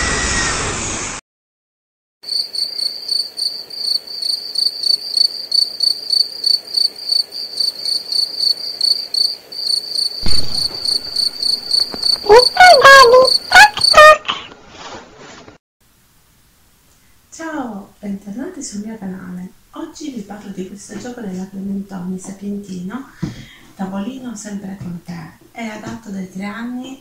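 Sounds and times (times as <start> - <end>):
squeaky cartoon sliding tones: 10.2 - 14.4.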